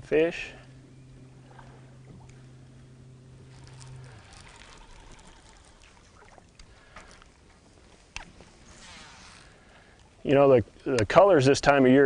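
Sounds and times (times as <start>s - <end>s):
faint trickling water: 0.0s - 12.0s
small electric motor humming: 0.4s - 6.2s.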